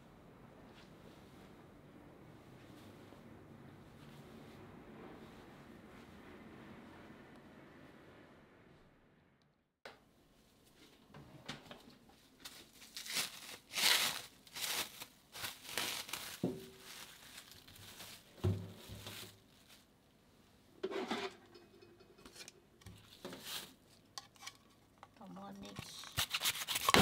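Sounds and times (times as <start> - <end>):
plastic film crinkling and tearing: 12.4 - 19.9, 25.8 - 27.0.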